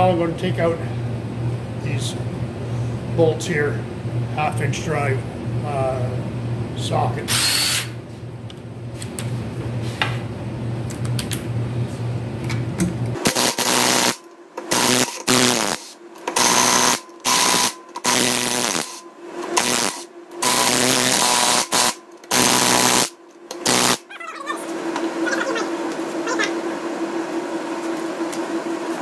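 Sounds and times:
steady low hum: 0.0 - 29.0
cordless drill whirring: 7.3 - 8.0.

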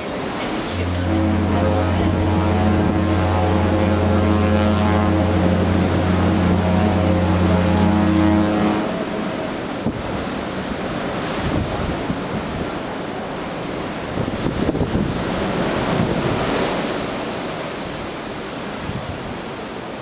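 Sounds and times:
wind buffeting microphone: 0.0 - 7.9, 8.5 - 12.9, 13.9 - 17.2
ship's horn blast: 0.0 - 19.7
sea waves rushing: 0.0 - 20.0.

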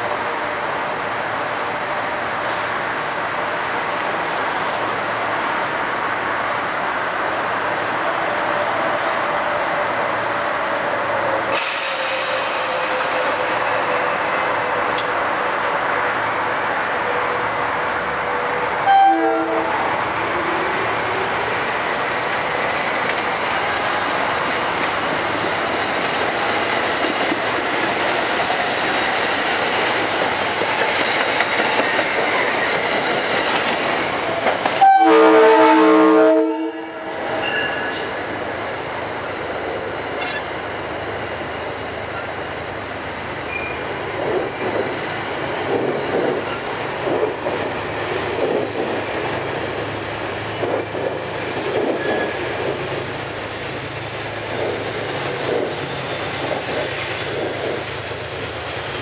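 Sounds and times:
train wheels rumbling on rail: 0.0 - 59.0
train horn chord: 18.8 - 19.9, 34.8 - 37.1.

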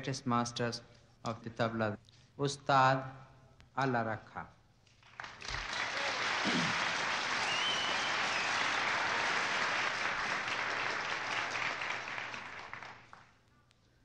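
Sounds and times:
audience applauding: 5.0 - 13.4.

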